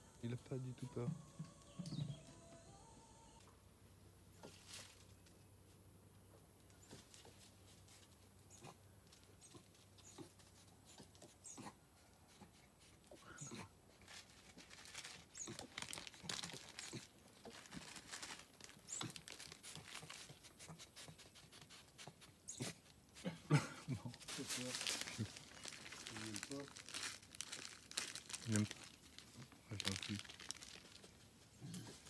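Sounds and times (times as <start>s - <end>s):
animal rustling and clicking: 13.9s - 23.0s.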